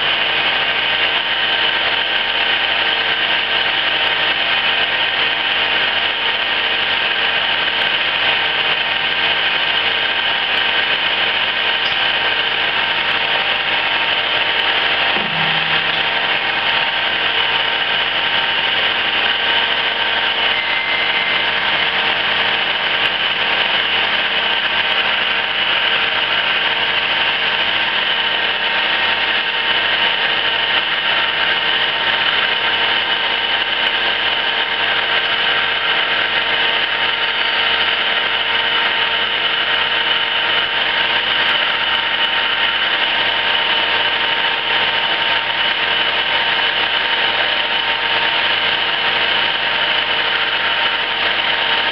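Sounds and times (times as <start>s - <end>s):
automatic lathe mechanical hum: 6.8s - 28.2s.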